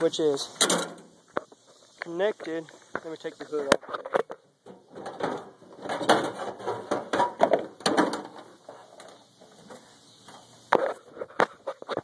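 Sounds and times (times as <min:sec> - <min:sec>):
tractor hood clattering: 0:00.6 - 0:01.1, 0:04.7 - 0:09.8.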